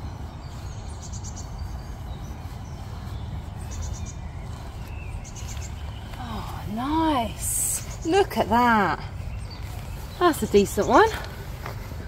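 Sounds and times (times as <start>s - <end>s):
small bird chirping: 0.0s - 11.8s
wind buffeting microphone: 0.0s - 12.0s.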